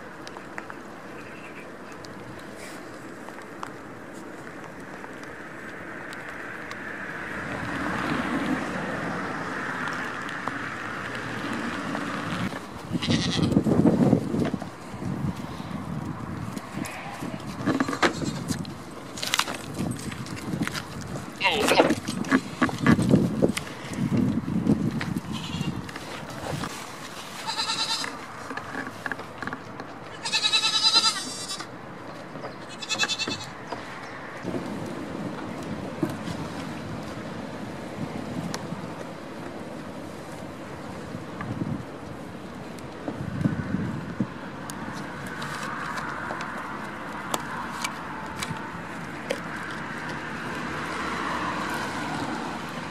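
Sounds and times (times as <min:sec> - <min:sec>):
wind buffeting microphone: 0:07.3 - 0:26.8, 0:34.4 - 0:45.4
goats bleating: 0:12.9 - 0:13.6, 0:21.4 - 0:22.0, 0:27.4 - 0:28.2, 0:30.1 - 0:31.7, 0:32.7 - 0:33.5.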